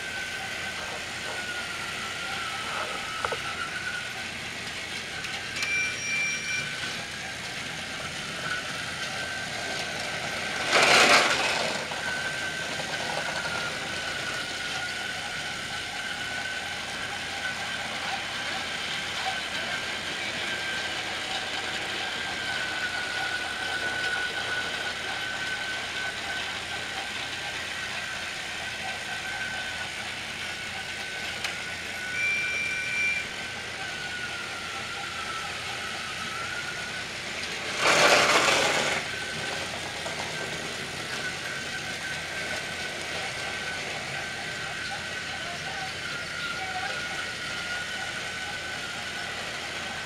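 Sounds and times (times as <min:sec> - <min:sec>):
toy train motors whirring: 0:00.0 - 0:50.0
short high beep: 0:05.6 - 0:06.7, 0:32.0 - 0:33.3.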